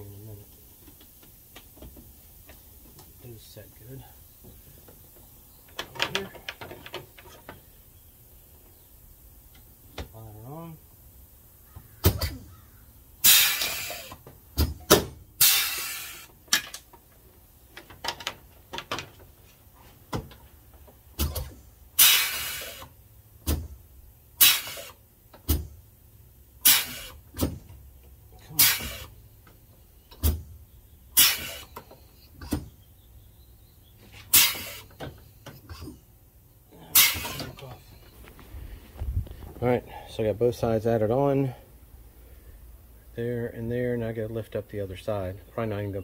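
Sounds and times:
rivet gun air hiss and clicks: 13.2s - 14.2s, 15.4s - 16.8s, 22.0s - 23.0s, 24.4s - 25.0s, 26.6s - 27.2s, 31.2s - 31.7s, 34.2s - 35.1s.

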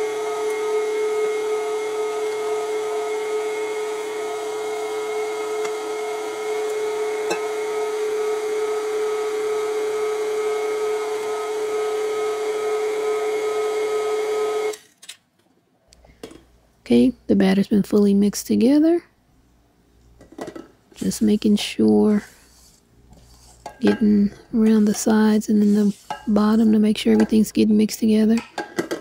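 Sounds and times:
stand mixer motor whine: 0.0s - 14.8s.

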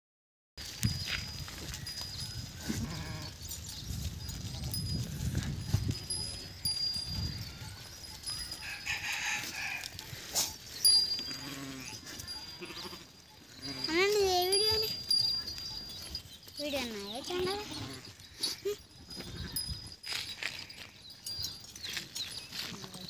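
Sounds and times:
small birds chirping: 10.5s - 19.6s, 20.6s - 23.0s
sheep calling: 11.2s - 14.1s, 17.5s - 19.6s.

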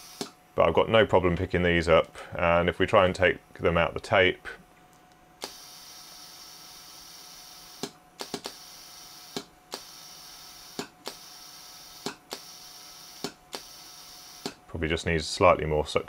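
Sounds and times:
compressed air hissing: 5.4s - 14.6s.

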